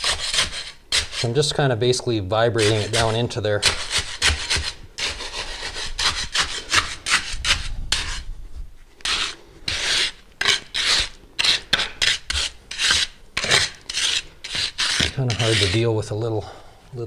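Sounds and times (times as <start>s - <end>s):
trowel scraping wet concrete: 0.0s - 1.6s, 2.4s - 8.2s, 9.0s - 16.2s.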